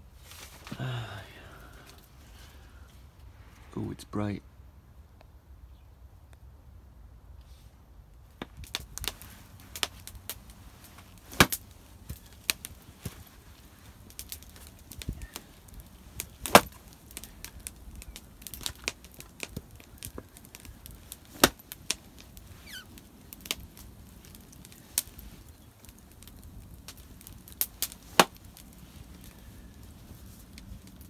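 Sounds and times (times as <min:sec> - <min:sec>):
wood being chopped: 0:11.3 - 0:11.6, 0:16.4 - 0:17.3, 0:21.3 - 0:21.7, 0:27.8 - 0:28.4.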